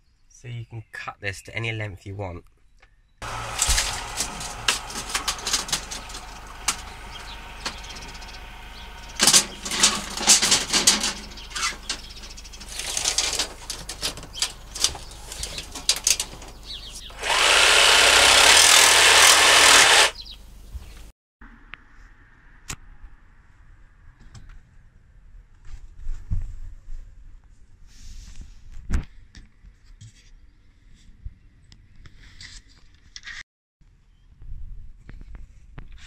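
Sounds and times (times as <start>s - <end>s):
jigsaw cutting: 3.2s - 7.8s, 17.1s - 20.2s
clicks and knocks of handling: 9.2s - 17.1s.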